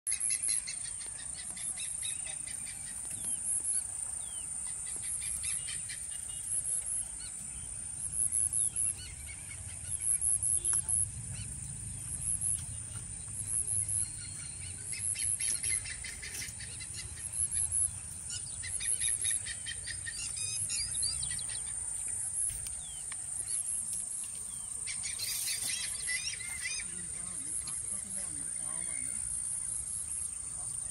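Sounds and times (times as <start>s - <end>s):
birds calling and chirping: 0.1s - 30.9s.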